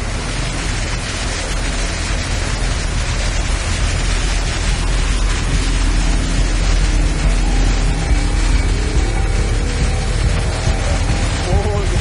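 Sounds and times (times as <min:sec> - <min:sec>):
deep rumble: 0:00.0 - 0:12.0
heavy rain pouring: 0:00.0 - 0:12.0.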